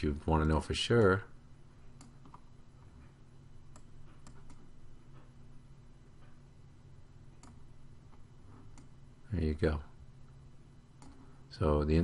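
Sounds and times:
faint low hum: 0:00.0 - 0:12.0
computer mouse clicks: 0:02.0 - 0:02.5, 0:03.7 - 0:04.7, 0:07.4 - 0:08.9, 0:11.0 - 0:11.2.

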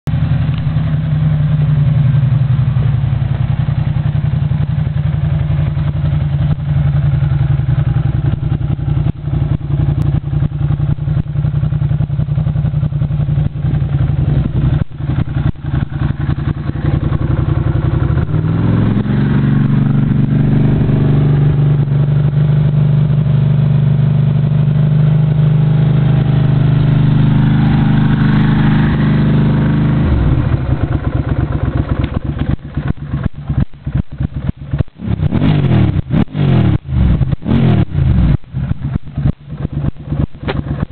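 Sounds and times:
motorcycle engine revving: 0:00.1 - 0:40.9.

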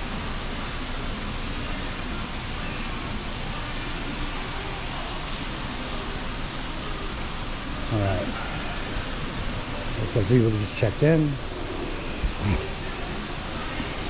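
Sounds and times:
steady rushing noise: 0:00.0 - 0:14.0
faint voices: 0:01.0 - 0:14.0.

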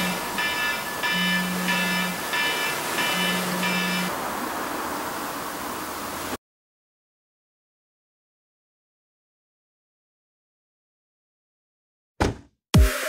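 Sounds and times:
low pulsing buzz: 0:00.0 - 0:04.1
phone alarm beeping: 0:00.0 - 0:04.1
steady hiss: 0:00.0 - 0:06.4.

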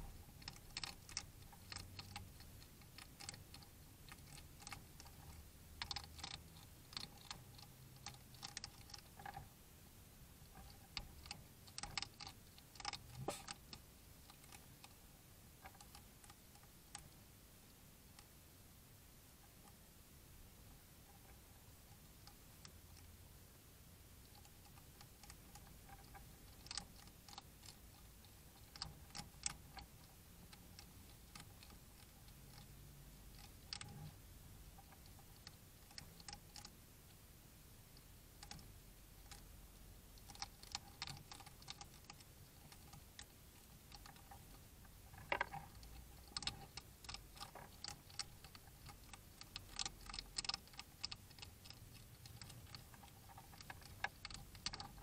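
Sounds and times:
steady hiss: 0:00.0 - 0:55.0
hedgehogs chewing with crunching clicks: 0:00.1 - 0:09.5, 0:10.4 - 0:15.0, 0:24.2 - 0:36.8, 0:37.8 - 0:55.0.

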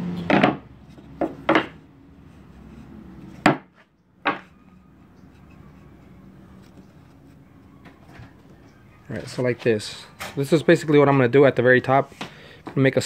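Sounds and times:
wooden boards knocking: 0:00.3 - 0:01.8, 0:03.4 - 0:04.6.

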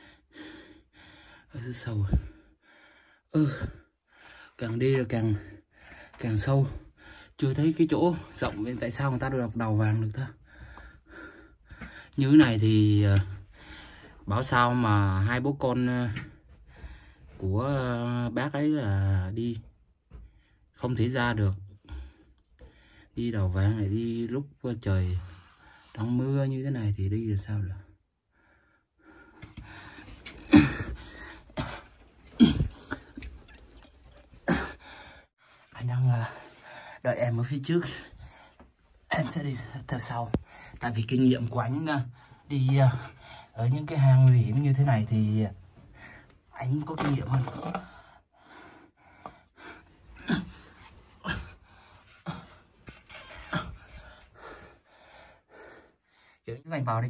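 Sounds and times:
heavy breathing: 0:00.0 - 0:01.5, 0:10.4 - 0:12.2, 0:13.4 - 0:14.3, 0:16.4 - 0:17.4, 0:28.3 - 0:35.7, 0:47.7 - 0:56.5
man coughing: 0:30.4 - 0:31.0, 0:31.6 - 0:33.3
man breathing hard: 0:34.6 - 0:35.7, 0:53.8 - 0:56.4.

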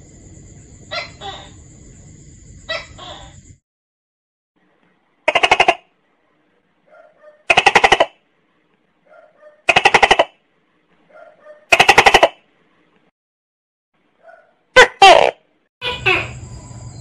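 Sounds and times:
gecko calling: 0:00.9 - 0:01.6, 0:02.6 - 0:03.6.

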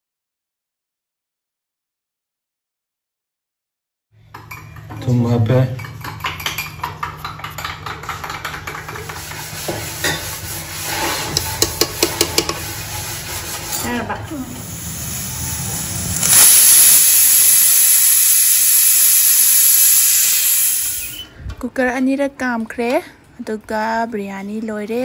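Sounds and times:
pressure cooker hissing steam: 0:09.1 - 0:21.3
low hum: 0:14.1 - 0:17.6.

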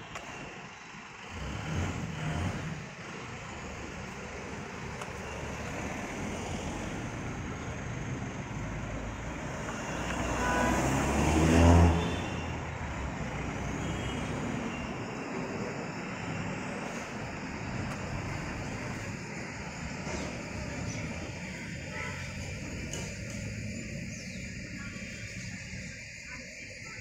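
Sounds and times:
road traffic noise: 0:00.0 - 0:27.0
vehicle passing close by: 0:05.5 - 0:15.1.

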